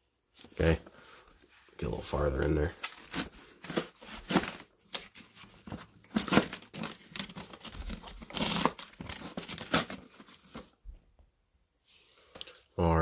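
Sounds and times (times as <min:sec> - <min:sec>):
paper wrapper ripping: 0:02.6 - 0:10.6.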